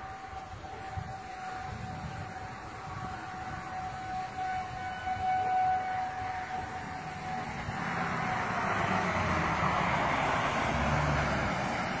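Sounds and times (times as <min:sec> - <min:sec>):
warning siren steady tone: 0:00.0 - 0:12.0
truck driving past: 0:05.2 - 0:12.0.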